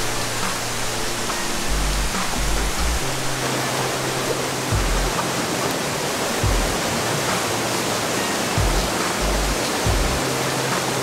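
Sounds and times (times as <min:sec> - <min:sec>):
background music with low bass: 0:00.0 - 0:11.0
stream water rushing: 0:00.0 - 0:11.0.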